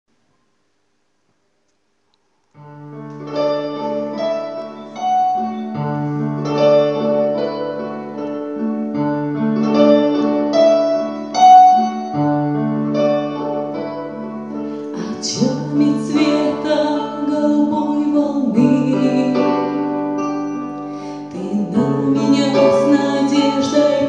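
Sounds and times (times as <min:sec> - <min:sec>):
keyboard chords and melody: 0:02.6 - 0:24.0.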